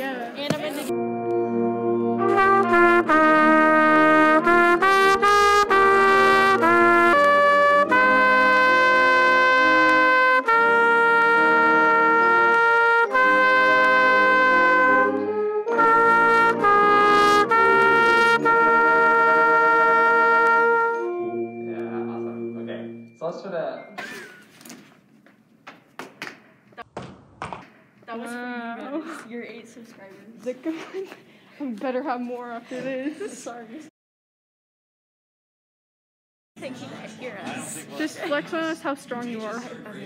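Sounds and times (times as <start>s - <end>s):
instruments holding low notes: 0.9s - 4.8s
trumpet playing: 0.9s - 23.2s.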